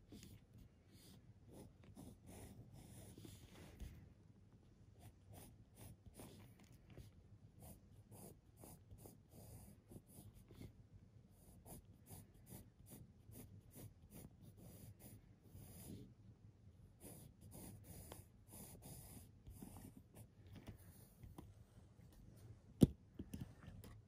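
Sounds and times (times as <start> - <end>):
pencil scratching on paper: 0.1 - 4.0, 5.0 - 16.1, 17.0 - 21.1.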